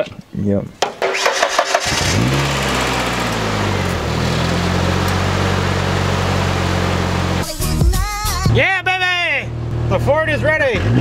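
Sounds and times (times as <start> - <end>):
engine cranking and idling: 0.9 - 8.0.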